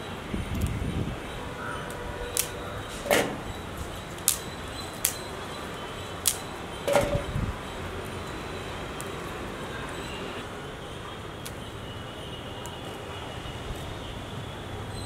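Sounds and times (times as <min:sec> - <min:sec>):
leaves snapped off by hand: 0:01.9 - 0:02.6, 0:04.1 - 0:05.2, 0:06.2 - 0:06.5.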